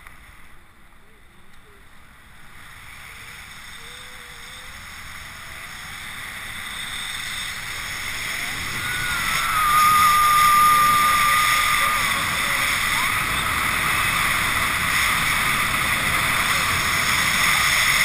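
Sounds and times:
wind rushing over microphone: 0:04.7 - 0:18.0
high held tone: 0:08.1 - 0:15.7.

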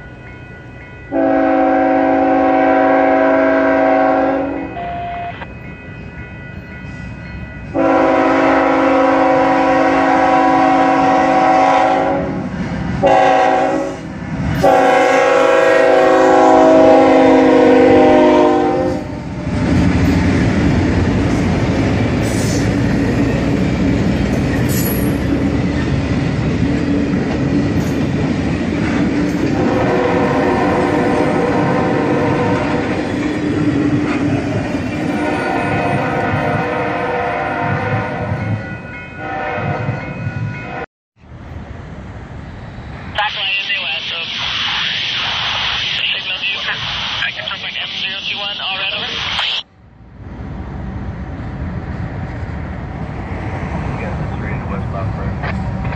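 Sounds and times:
locomotive air horn blasts: 0:01.1 - 0:05.4, 0:07.8 - 0:12.4, 0:13.0 - 0:14.0, 0:14.6 - 0:19.2, 0:29.5 - 0:32.8, 0:35.2 - 0:38.4, 0:39.2 - 0:39.9
train wheels on rails: 0:05.4 - 0:40.8, 0:44.2 - 0:55.9.

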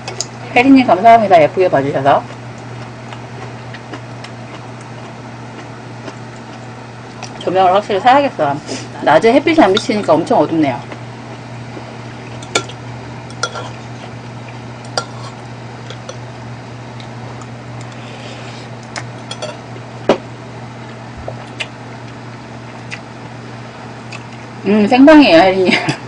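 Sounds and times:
steady low hum: 0:00.0 - 0:26.0
spoon clinking on ceramic bowl: 0:19.2 - 0:19.6.

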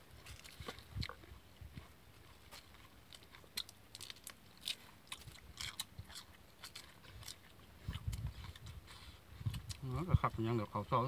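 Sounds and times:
person chewing crunchy food: 0:00.0 - 0:09.9.

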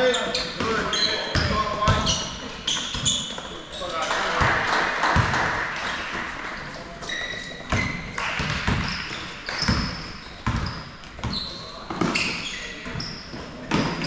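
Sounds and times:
sneaker squeaks: 0:00.0 - 0:04.1, 0:05.9 - 0:14.0
basketball bouncing on gym floor: 0:00.6 - 0:03.5, 0:07.0 - 0:14.0.

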